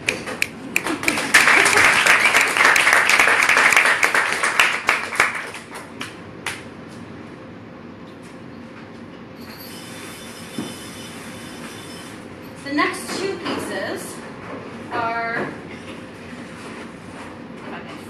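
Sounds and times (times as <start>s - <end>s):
small audience applauding: 0.0s - 6.6s.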